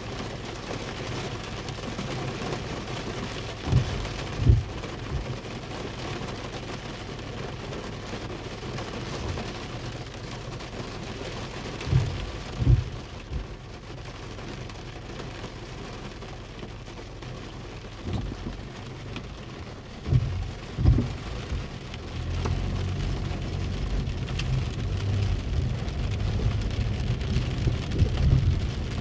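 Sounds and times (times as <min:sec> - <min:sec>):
rain on car windshield and roof: 0:00.0 - 0:29.0
deep thumps: 0:03.7 - 0:04.8, 0:11.9 - 0:13.5, 0:19.9 - 0:21.8.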